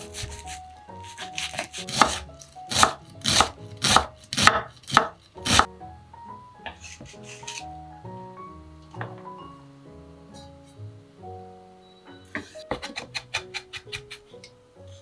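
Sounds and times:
knife chopping on wooden board: 0:00.0 - 0:05.7, 0:06.7 - 0:07.6.

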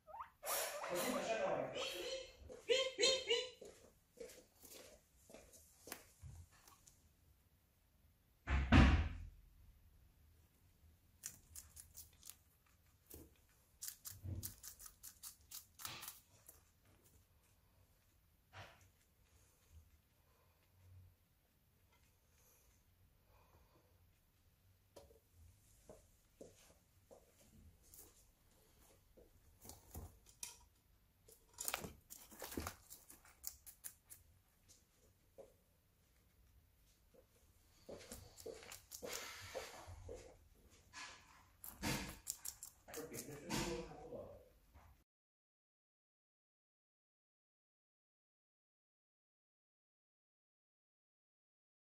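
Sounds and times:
guinea pig crunching greens: 0:10.7 - 0:22.8, 0:27.8 - 0:44.0
guinea pig biting clicks and snips: 0:11.1 - 0:17.2, 0:31.3 - 0:34.4, 0:38.0 - 0:39.7, 0:41.6 - 0:43.5.

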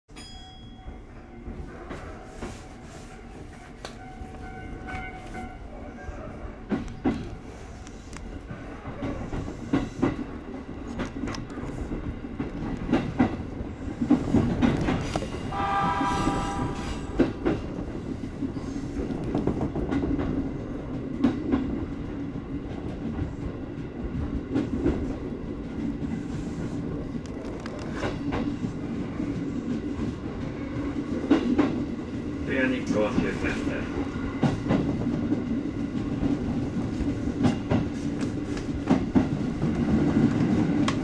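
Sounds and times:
electric train rumbling: 0:00.1 - 0:41.0
train horn: 0:02.9 - 0:05.6, 0:15.4 - 0:17.3.

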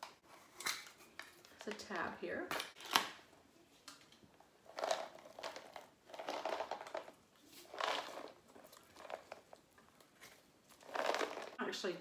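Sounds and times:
plastic seal crinkling: 0:04.7 - 0:11.6.

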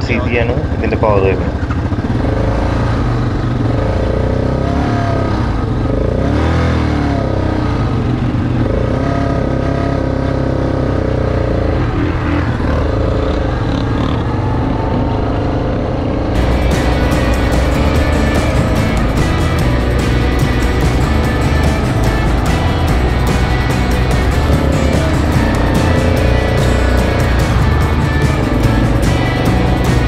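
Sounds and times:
quad bike engine revving: 0:00.0 - 0:30.0
music: 0:16.4 - 0:30.0.

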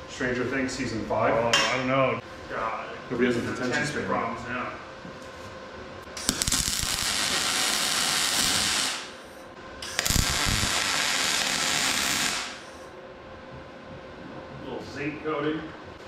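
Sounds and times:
welding crackle: 0:06.1 - 0:12.8.

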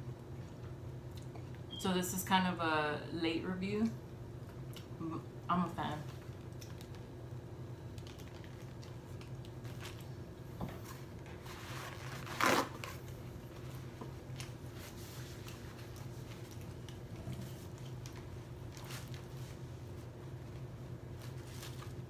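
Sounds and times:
steady low hum: 0:00.0 - 0:22.0
quiet chewing: 0:00.2 - 0:01.6, 0:06.2 - 0:07.1, 0:07.9 - 0:10.1, 0:15.2 - 0:19.4
paper napkin rustling: 0:10.8 - 0:22.0.

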